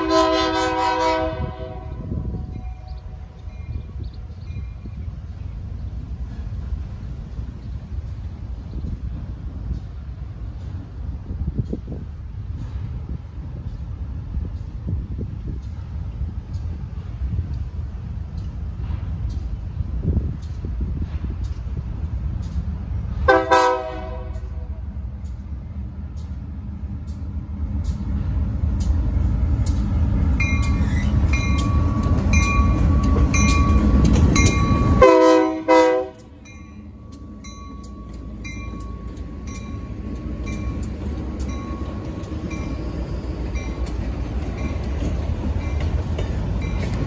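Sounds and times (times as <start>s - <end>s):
locomotive chime horn: 0.0s - 3.0s, 23.3s - 24.7s, 32.4s - 39.9s
diesel locomotives rumbling past: 0.0s - 47.0s
locomotive bell ringing: 30.4s - 47.0s.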